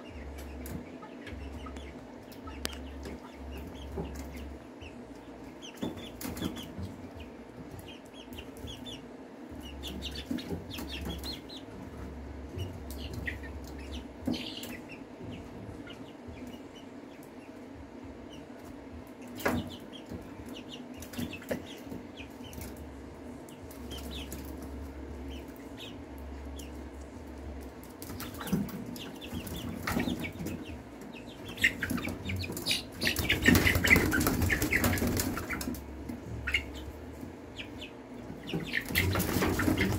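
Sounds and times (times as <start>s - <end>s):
chicks peeping: 0.0s - 39.9s
wings flapping: 31.5s - 36.7s, 38.4s - 39.9s.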